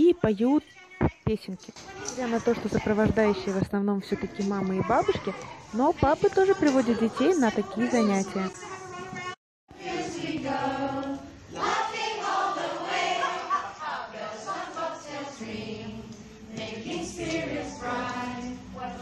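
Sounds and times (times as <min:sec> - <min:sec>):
adults and children singing: 0:04.2 - 0:19.0.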